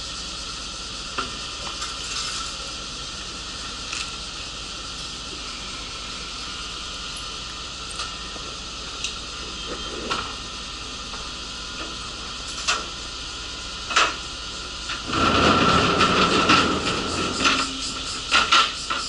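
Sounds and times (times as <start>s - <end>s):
bus interior hum: 0.0s - 15.1s
loud rough rattling hiss: 0.0s - 19.0s.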